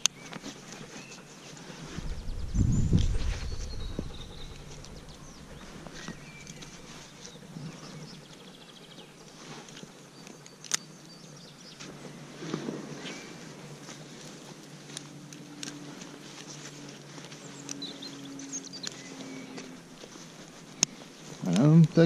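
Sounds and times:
low rumble on microphone: 1.8s - 8.4s
faint bird chirps: 2.0s - 9.2s.

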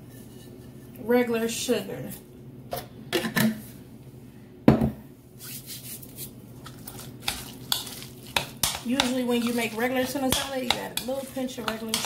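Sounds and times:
metal fork clinking ceramic bowl: 10.3s - 12.0s.

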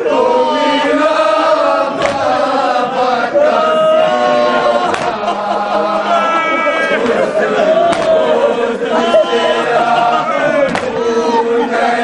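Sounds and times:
men chanting a lament: 0.0s - 12.0s
hands slapping chests: 2.0s - 2.3s, 4.8s - 5.3s, 7.9s - 8.2s, 10.7s - 11.0s.

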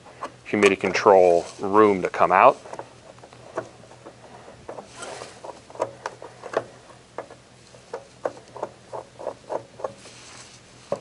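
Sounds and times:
screwdriver clicking and scraping: 2.6s - 10.1s.

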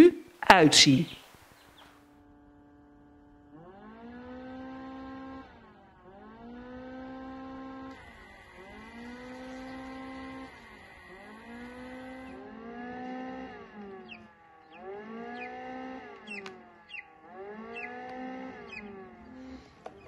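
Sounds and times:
low droning tone: 2.1s - 20.0s
chick peeping: 16.2s - 17.1s, 17.7s - 19.0s.

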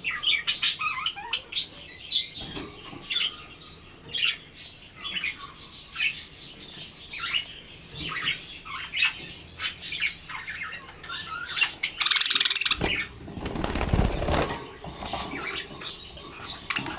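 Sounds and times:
budgerigars chirping: 0.0s - 16.9s
wings flapping: 12.8s - 15.3s.

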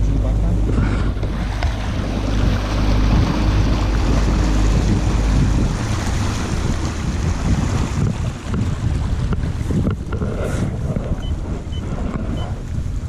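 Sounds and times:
outboard motor running: 0.0s - 13.0s
water rushing in wake: 0.0s - 13.0s
wind buffeting microphone: 0.0s - 13.0s.

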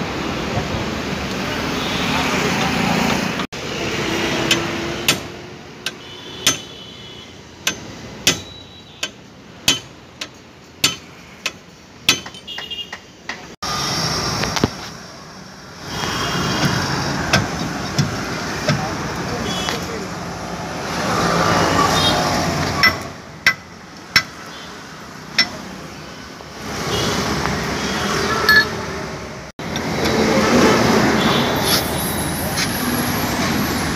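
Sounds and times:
metal tool tapping wheel hub: 4.5s - 6.7s, 7.6s - 13.5s, 22.7s - 24.4s, 25.3s - 25.6s, 28.5s - 28.8s.

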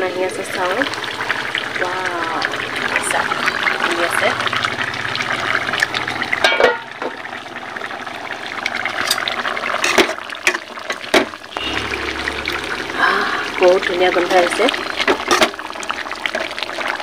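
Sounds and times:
metal pot lid and utensils clanking: 6.4s - 7.2s, 9.0s - 11.4s, 15.0s - 15.6s.

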